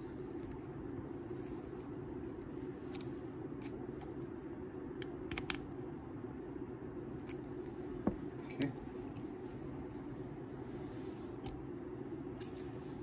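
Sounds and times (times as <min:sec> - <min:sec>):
steady low hum: 0:00.0 - 0:13.0.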